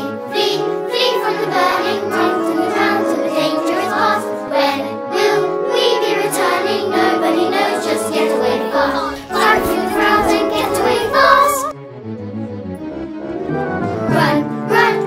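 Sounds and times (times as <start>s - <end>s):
children singing together: 0.0s - 11.8s, 14.0s - 15.0s
instrumental accompaniment: 0.0s - 15.0s.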